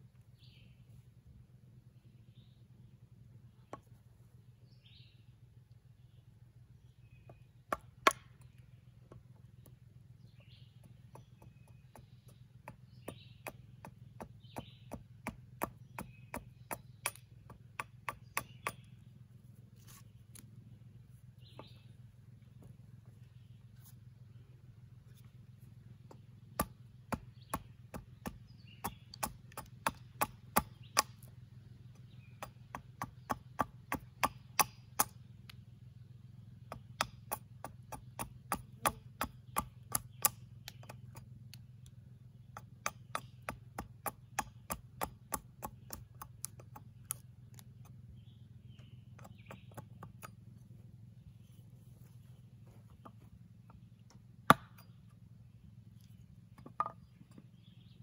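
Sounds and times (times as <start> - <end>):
hatchet chopping wood: 7.3 - 19.1, 26.1 - 31.3, 31.9 - 35.5, 36.5 - 48.1, 48.8 - 50.6, 54.0 - 55.0, 56.0 - 57.4.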